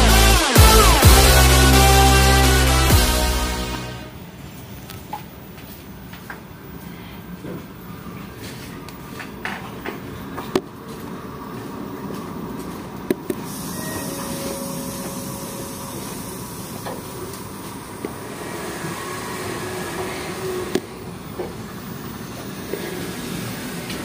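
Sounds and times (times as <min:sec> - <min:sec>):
train rail rumble and hiss: 0:05.5 - 0:24.0.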